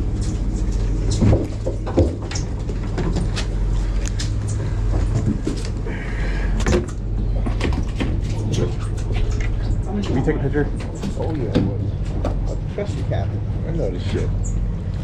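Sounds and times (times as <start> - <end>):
boat machinery hum: 0.0 - 15.0.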